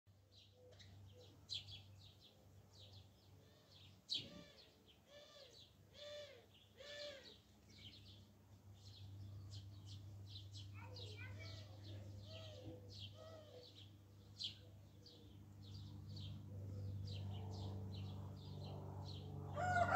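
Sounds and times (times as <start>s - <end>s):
small birds chirping: 0.2s - 19.9s
short arching bird calls: 4.2s - 7.4s.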